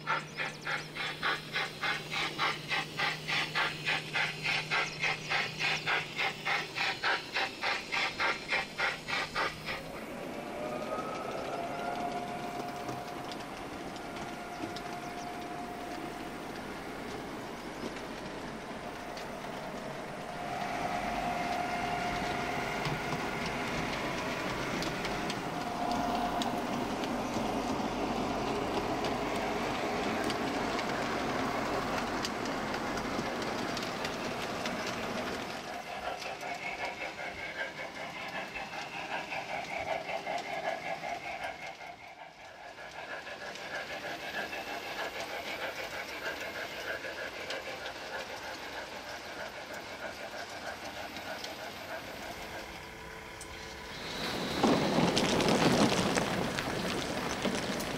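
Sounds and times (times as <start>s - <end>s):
model train rolling rattle: 0.0s - 57.9s.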